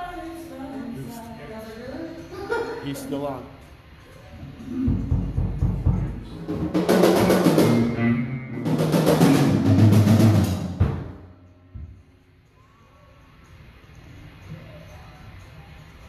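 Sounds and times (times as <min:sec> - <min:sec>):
drum rolls: 0:04.6 - 0:12.1.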